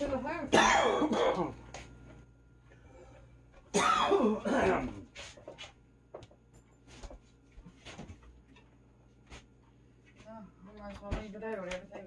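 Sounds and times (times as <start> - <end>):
person clearing throat: 0.5 - 1.6, 3.7 - 5.0
faint household knocks and clicks: 5.1 - 9.7, 10.7 - 12.0.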